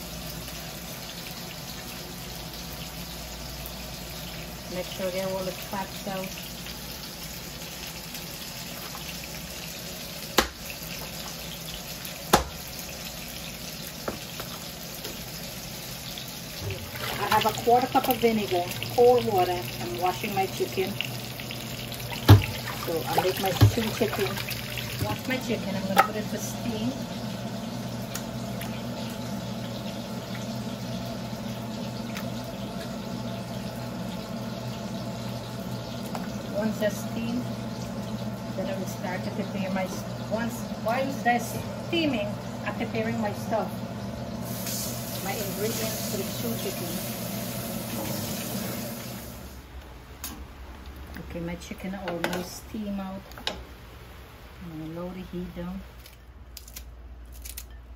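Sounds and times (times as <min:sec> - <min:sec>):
low hum and hiss: 0:00.0 - 0:57.9
cleaver chopping on cutting board: 0:10.4 - 0:10.6, 0:12.3 - 0:12.6
soft knocks in frying pan: 0:12.3 - 0:12.6
steady hiss: 0:44.4 - 0:49.7.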